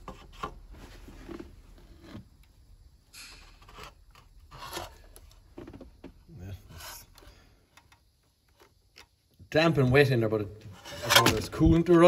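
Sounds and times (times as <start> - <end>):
cable handling scrapes: 3.2 - 5.8.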